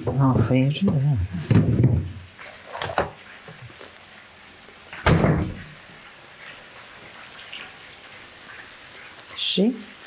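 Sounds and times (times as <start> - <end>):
refrigerator door thud: 5.0 - 5.6.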